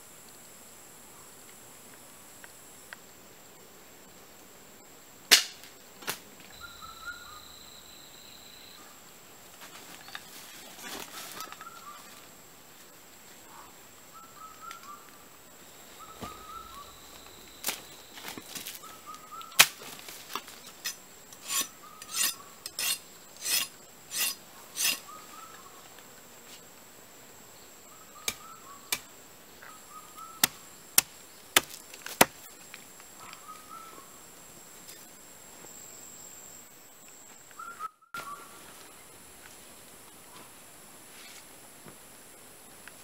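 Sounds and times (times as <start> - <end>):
machete chopping a branch: 5.3 - 6.2, 19.6 - 21.0, 28.2 - 29.1, 30.4 - 32.5
faint chirping calls: 6.5 - 9.0, 13.4 - 15.2, 15.8 - 18.1, 18.8 - 19.6, 27.7 - 29.0, 29.6 - 30.7, 33.2 - 34.2, 37.5 - 38.6.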